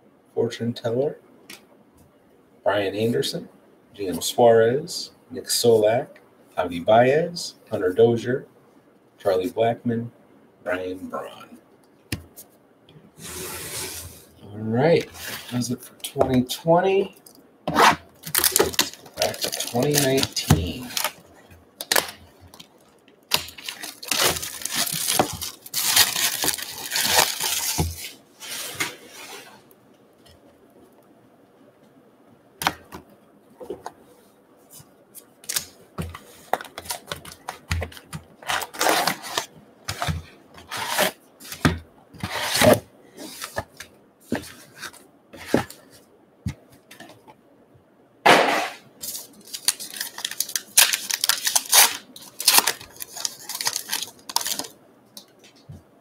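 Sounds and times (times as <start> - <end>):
cardboard box tearing and rustling: 17.8 - 21.2, 23.3 - 28.1, 38.4 - 40.1, 49.6 - 54.7
wrapper ripped open: 17.8 - 21.2, 23.3 - 27.8, 49.4 - 54.7.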